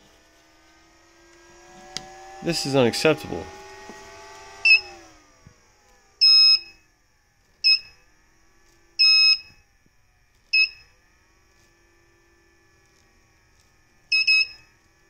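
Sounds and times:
high piercing alarm beeps: 4.6s - 4.9s, 6.2s - 6.8s, 7.6s - 8.0s, 9.0s - 9.6s, 10.5s - 10.9s, 14.1s - 14.7s.

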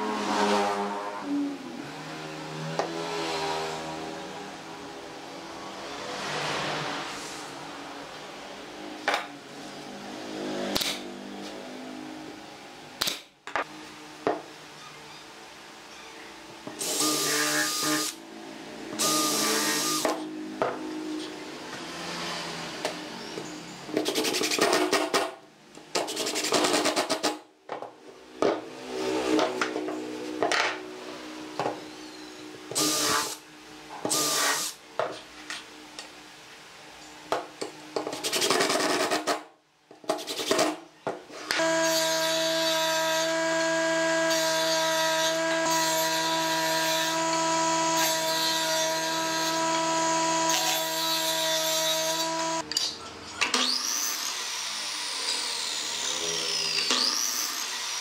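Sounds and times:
power tool motor running: 16.8s - 18.2s, 18.9s - 20.2s, 32.7s - 33.4s, 34.1s - 34.8s, 41.5s - 52.6s.

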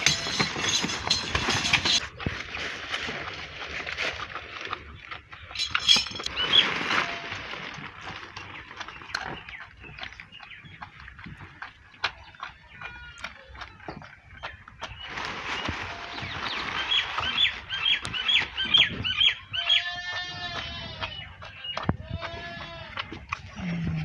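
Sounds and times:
calf sucking and smacking: 20.1s - 24.0s.

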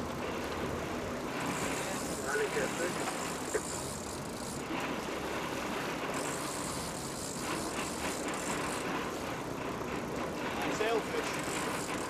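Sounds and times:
boat engine: 0.0s - 12.0s
wind: 0.0s - 12.0s
fishing reel rattling: 1.4s - 4.8s, 6.1s - 9.0s, 10.6s - 12.0s.

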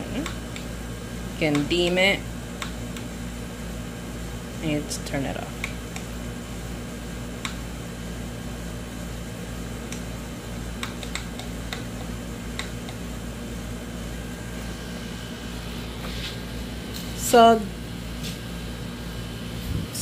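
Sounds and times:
low mechanical hum: 0.0s - 20.0s
lamp button clicks: 5.6s - 6.1s, 7.4s - 7.6s, 10.8s - 13.0s.

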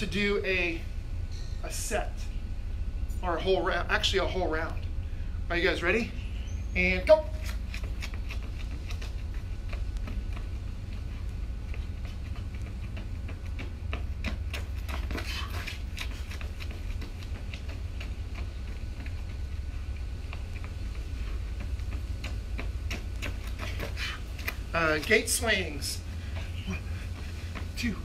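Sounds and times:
running footsteps on concrete: 5.6s - 28.0s.

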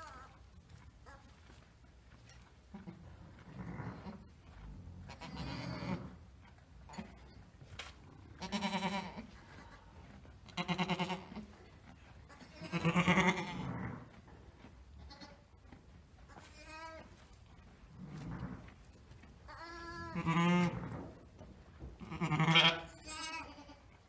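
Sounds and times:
sheep bleating: 5.1s - 6.2s, 8.4s - 9.7s, 10.5s - 11.4s, 12.3s - 13.8s, 19.5s - 20.8s, 22.0s - 23.9s.

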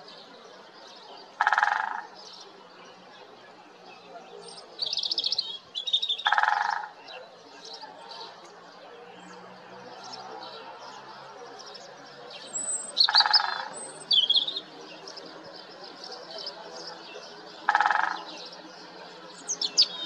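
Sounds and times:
small birds chirping: 0.0s - 20.0s
woodpecker drumming on tree: 1.4s - 2.1s, 6.2s - 7.0s, 13.1s - 13.7s, 17.7s - 18.3s.

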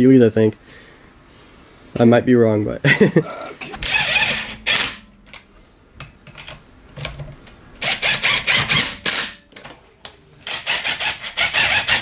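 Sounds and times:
impact wrench hammering: 3.7s - 5.4s, 7.8s - 9.4s.

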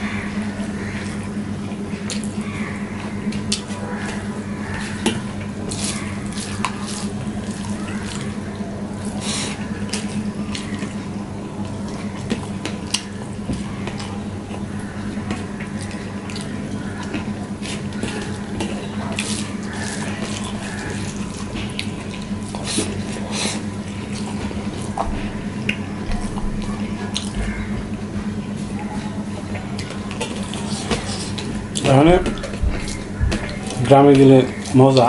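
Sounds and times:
low hum: 0.0s - 35.0s
chewing: 3.3s - 11.0s, 11.6s - 27.6s, 28.5s - 35.0s
fingers squelching rice: 15.5s - 25.0s.

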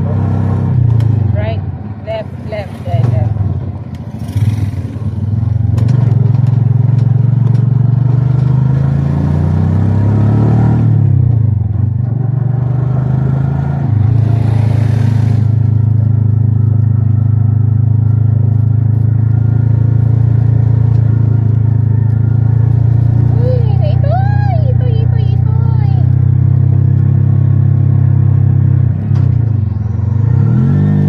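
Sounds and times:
vehicle engine running: 0.0s - 8.2s, 13.8s - 31.0s.

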